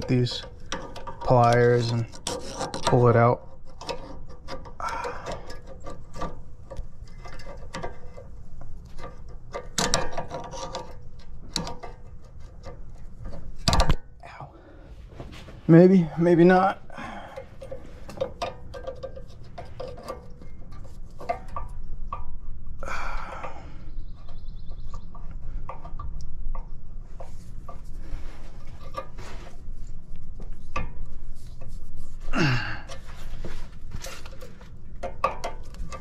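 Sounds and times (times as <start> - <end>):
person grunting: 32.3 - 32.9.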